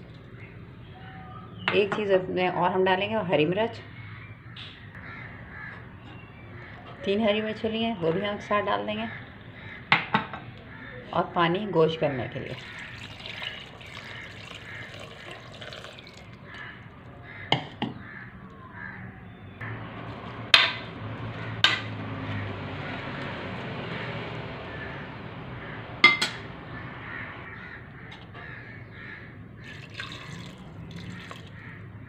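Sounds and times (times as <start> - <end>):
water pouring into a pot: 12.5 - 16.6, 29.6 - 31.6.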